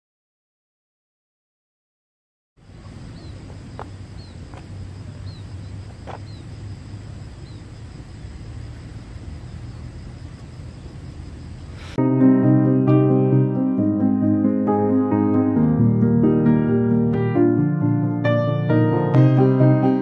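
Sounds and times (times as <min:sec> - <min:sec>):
high insect drone: 0:02.6 - 0:12.0.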